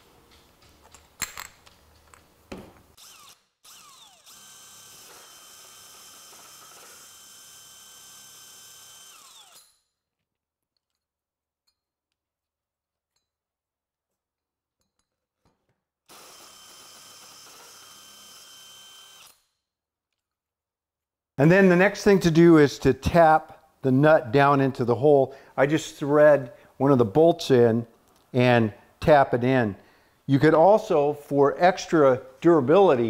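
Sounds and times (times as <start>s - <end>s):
drill boring through plywood: 3.0s - 9.7s, 16.1s - 19.4s
cordless drill whining: 3.0s - 9.8s, 16.1s - 19.5s.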